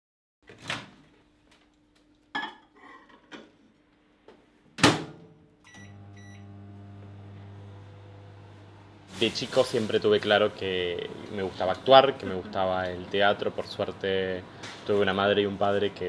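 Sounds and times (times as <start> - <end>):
short keypad beeps: 5.7 - 6.4
microwave oven humming: 5.7 - 9.1.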